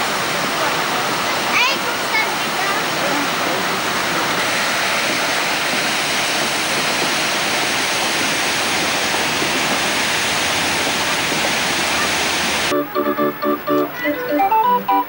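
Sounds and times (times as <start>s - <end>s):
water rushing and splashing: 0.0s - 12.7s.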